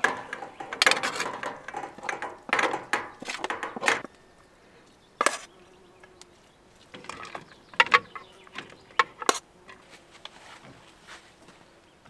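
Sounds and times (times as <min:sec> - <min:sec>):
metal spoon scraping metal pot: 0:00.0 - 0:04.1
faint steady buzz: 0:00.0 - 0:12.0.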